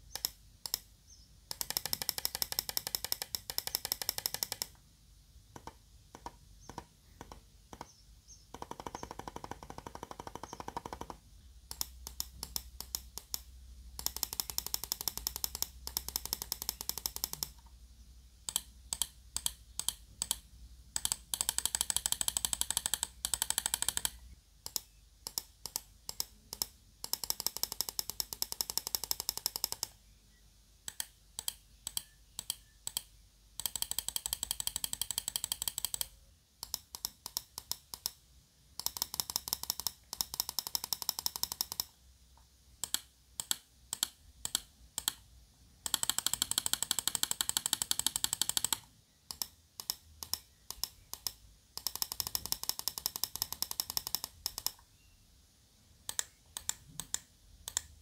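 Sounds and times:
mouse button clicking: 30.9s - 38.2s, 56.1s - 58.0s.

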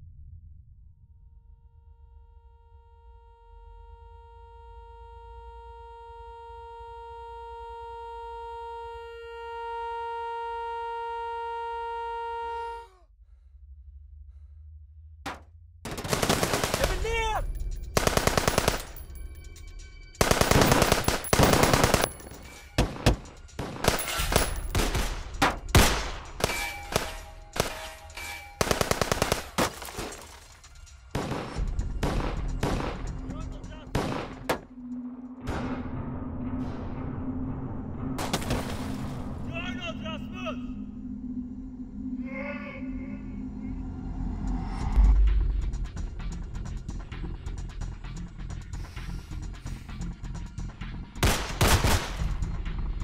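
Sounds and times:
automatic rifle fire: 15.9s - 17.2s, 18.0s - 19.0s, 20.2s - 25.2s, 25.8s - 27.9s, 28.6s - 30.4s, 51.2s - 52.2s.

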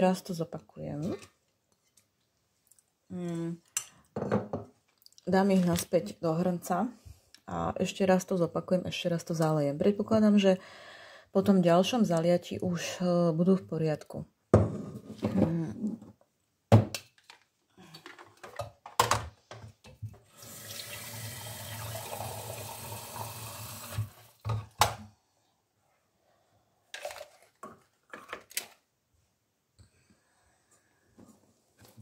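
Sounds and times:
water running from a tap: 20.3s - 24.4s.

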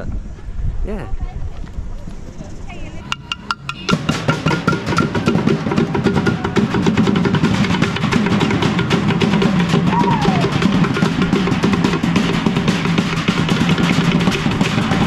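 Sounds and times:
street drummers drumming: 3.0s - 15.0s
snare drum rolls: 3.7s - 15.0s.

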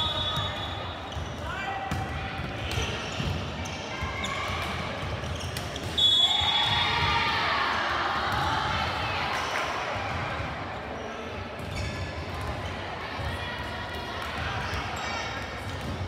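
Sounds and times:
high whistle: 0.0s - 0.9s, 6.0s - 6.7s
crowd talking: 0.0s - 16.0s.

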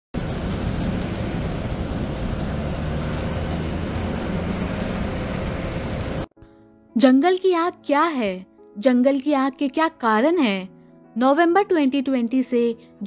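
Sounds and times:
fire crackling: 0.1s - 6.3s
fire roaring: 0.1s - 6.3s.

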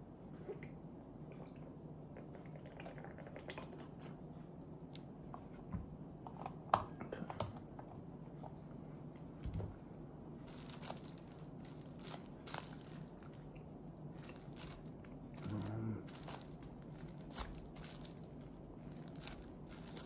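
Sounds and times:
plastic wrapping crinkling: 10.5s - 20.0s.

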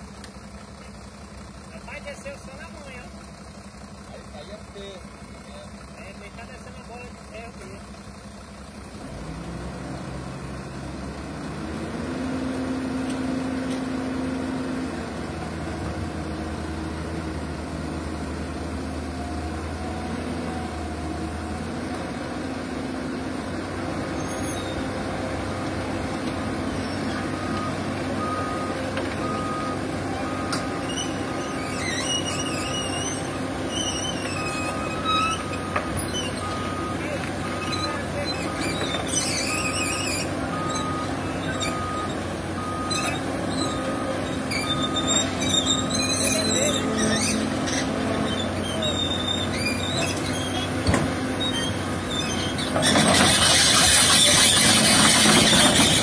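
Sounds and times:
excavator diesel engine running: 0.0s - 56.0s.

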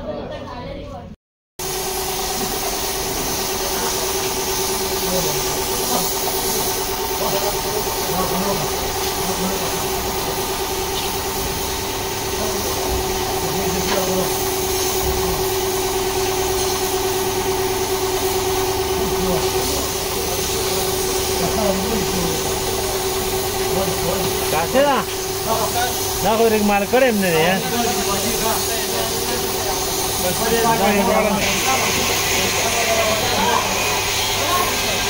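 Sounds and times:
machine hum: 1.6s - 35.0s
spray gun air hissing: 1.6s - 35.0s.

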